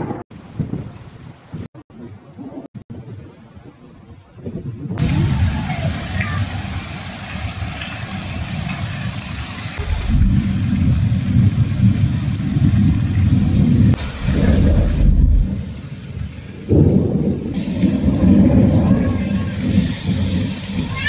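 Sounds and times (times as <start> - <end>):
heavy rain pouring: 0.0 - 21.0
deep uneven rumble: 9.8 - 21.0.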